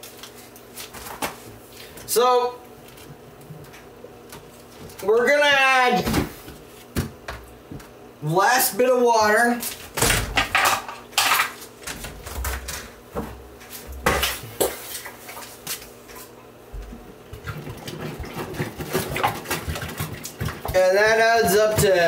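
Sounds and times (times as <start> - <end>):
plastic jug knocks and clunks: 16.8 - 22.0.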